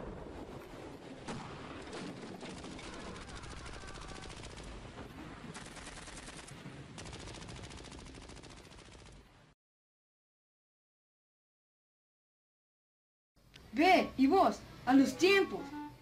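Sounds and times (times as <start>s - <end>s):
fast rattle of sharp clicks: 5.6s - 9.2s.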